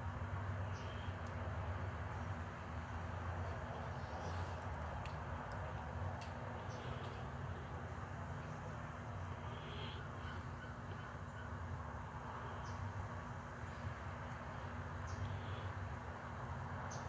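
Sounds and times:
low outdoor rumble: 0:00.0 - 0:17.0
faint bird calls: 0:06.6 - 0:13.9, 0:15.0 - 0:15.8.

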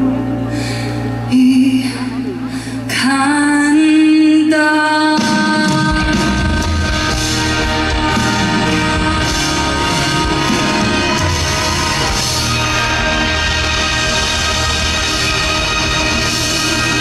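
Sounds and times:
bass: 0:00.0 - 0:17.0
drums: 0:00.0 - 0:17.0
sustained chords: 0:06.1 - 0:17.0.

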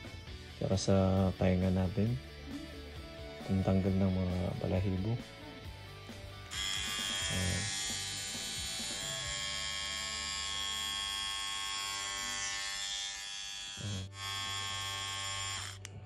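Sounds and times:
electric trimmer buzzing: 0:06.4 - 0:16.0.

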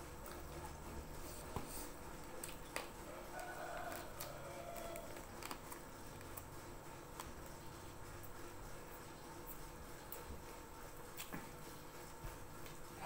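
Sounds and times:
chewing: 0:01.6 - 0:06.5, 0:11.0 - 0:11.5.

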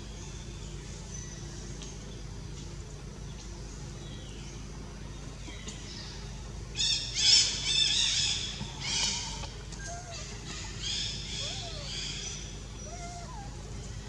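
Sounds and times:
baby monkey screaming: 0:06.9 - 0:13.6.

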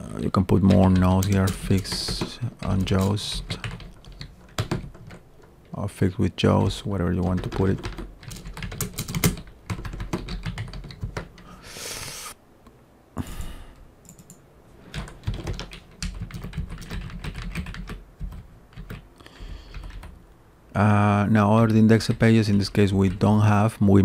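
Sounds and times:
computer keyboard typing: 0:00.6 - 0:05.8, 0:06.5 - 0:11.6, 0:14.0 - 0:20.2, 0:21.9 - 0:23.4.

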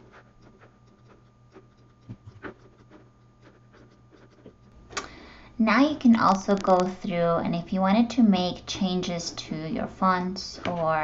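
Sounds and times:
faint steady hum: 0:00.0 - 0:11.0
computer mouse clicking: 0:00.4 - 0:05.1.

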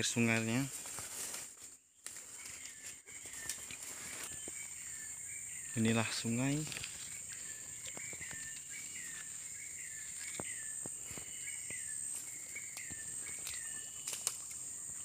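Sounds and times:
bird call: 0:02.3 - 0:14.3.

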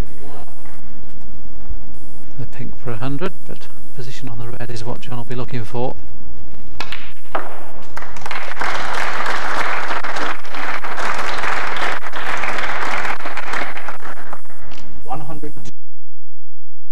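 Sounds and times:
audience applauding: 0:07.8 - 0:15.0.

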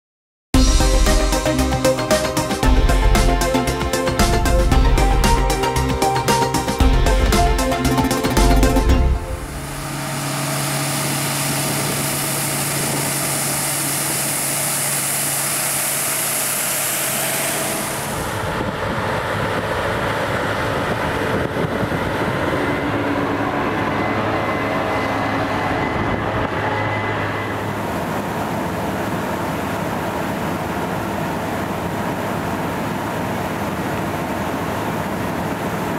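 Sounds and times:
combine harvester hum: 0:00.6 - 0:35.9
high machinery hiss: 0:09.4 - 0:18.9.

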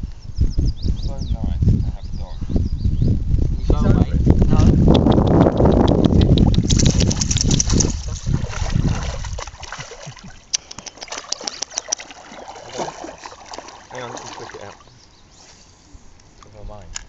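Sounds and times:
dog splashing in shallow river: 0:06.6 - 0:14.9.

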